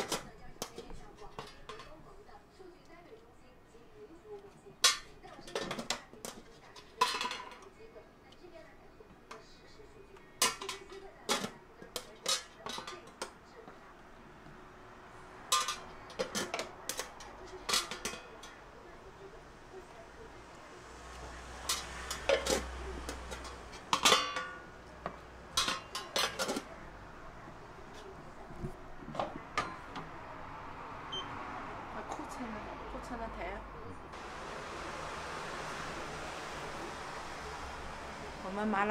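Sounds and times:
utensils clinking against dishes: 0.0 - 2.3, 4.6 - 7.9, 9.3 - 13.9, 15.4 - 20.0, 21.5 - 26.9, 27.9 - 30.1.

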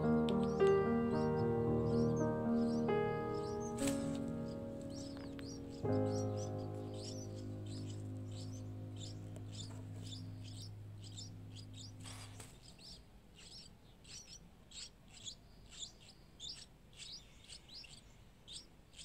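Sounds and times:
held music chord: 0.0 - 12.9
nestlings' high chirps: 0.0 - 19.0.

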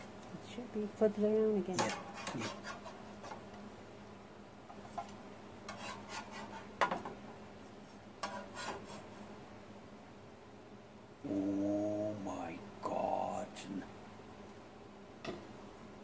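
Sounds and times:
metal spatula scraping griddle: 1.8 - 3.4, 5.7 - 6.7, 8.2 - 9.2.

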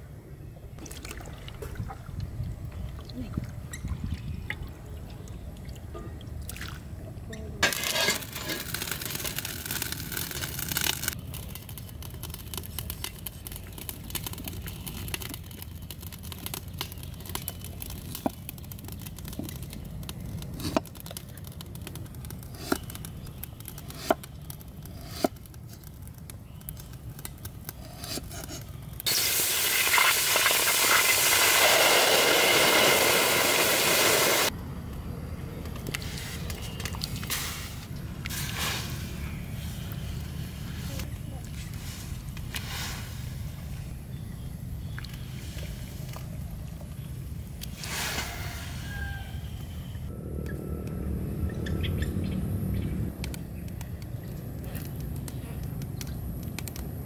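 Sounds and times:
water splashing: 0.8 - 2.2
water boiling hard in wok: 29.1 - 34.5.

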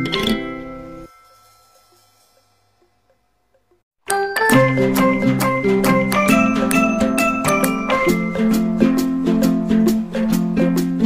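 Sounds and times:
background music with steady beat: 4.1 - 11.0.

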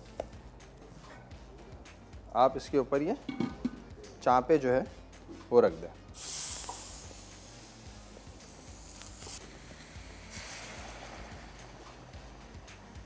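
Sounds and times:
meat sizzling on a griddle: 6.1 - 13.0
water sizzling on hot griddle: 6.1 - 13.0.

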